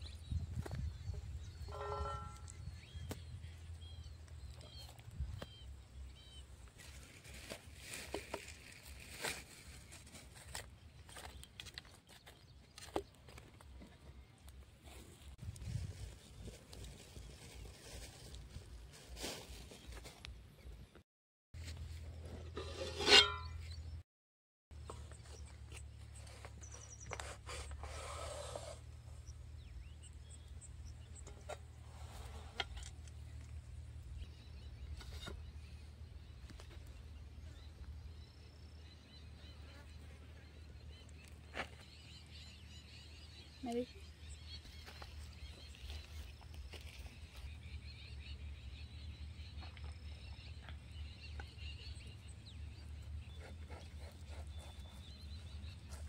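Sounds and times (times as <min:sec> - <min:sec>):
spatula scraping iron wok: 0:22.3 - 0:23.7
small birds chirping: 0:24.8 - 0:56.0.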